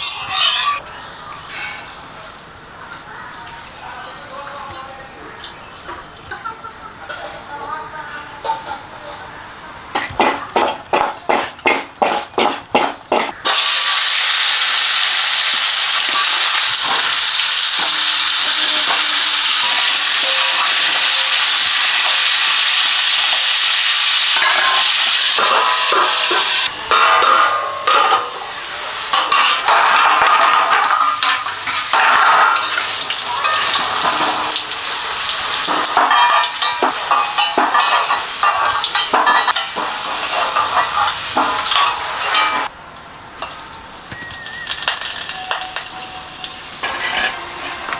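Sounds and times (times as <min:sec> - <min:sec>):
potatoes sizzling in hot oil: 0:12.0 - 0:26.7, 0:28.2 - 0:42.7, 0:43.5 - 0:47.9
metal spatula scraping pan: 0:29.1 - 0:34.6, 0:35.6 - 0:42.7, 0:45.3 - 0:47.9.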